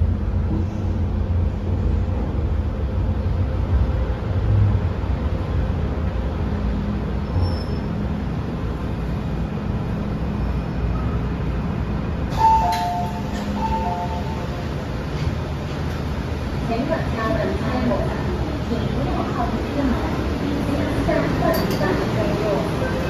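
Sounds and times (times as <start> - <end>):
train running rumble: 0.0 - 23.0
train door release click: 12.3 - 14.5.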